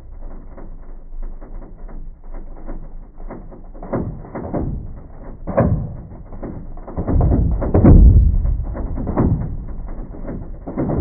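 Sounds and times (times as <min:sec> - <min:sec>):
muffled crackle of knocks: 0:01.2 - 0:11.0
deep booms: 0:07.0 - 0:11.0
rumbling boom: 0:07.0 - 0:11.0.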